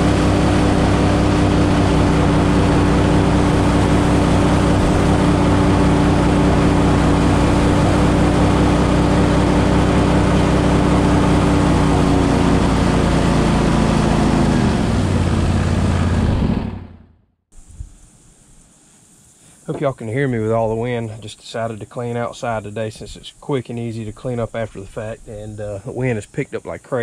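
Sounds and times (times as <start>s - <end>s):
water noise: 0.0s - 13.4s
boat motor cruising: 0.0s - 17.1s
wind: 0.0s - 27.0s.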